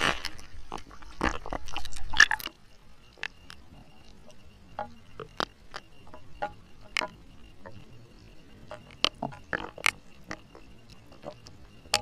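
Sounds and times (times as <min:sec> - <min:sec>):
raindrops tapping: 0:04.2 - 0:07.8.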